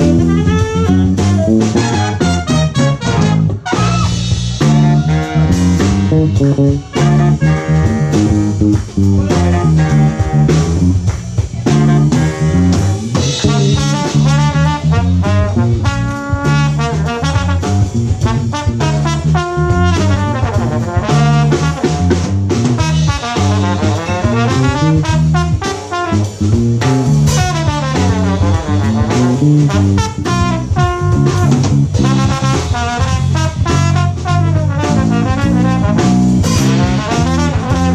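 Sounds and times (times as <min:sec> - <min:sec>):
bass line: 0:00.0 - 0:37.9
drum kit: 0:00.0 - 0:37.9
saxophone section: 0:00.0 - 0:37.9.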